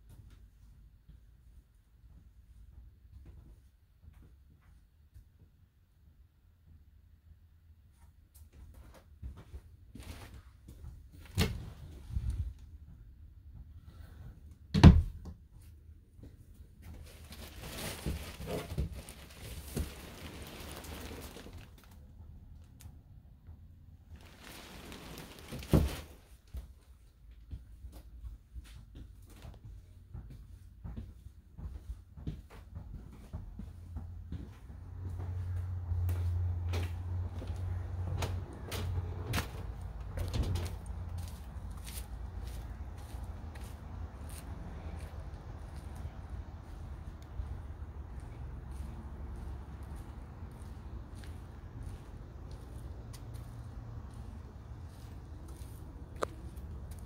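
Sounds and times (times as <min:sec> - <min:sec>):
rustling and handling noise: 0:07.9 - 0:13.0, 0:15.5 - 0:31.0, 0:32.5 - 0:57.0
footsteps: 0:15.6 - 0:22.0, 0:23.4 - 0:57.0
steady low rumble: 0:33.4 - 0:57.0.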